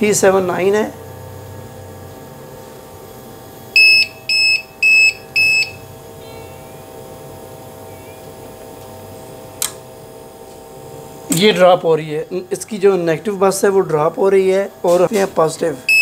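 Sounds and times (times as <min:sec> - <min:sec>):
steady electrical hum: 0:00.0 - 0:16.0
short high alarm beeps: 0:03.8 - 0:05.8.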